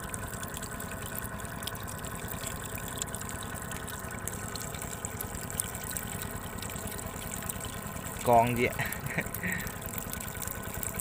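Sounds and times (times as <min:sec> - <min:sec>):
faint motor hum: 0:00.0 - 0:11.0
running water: 0:00.0 - 0:11.0.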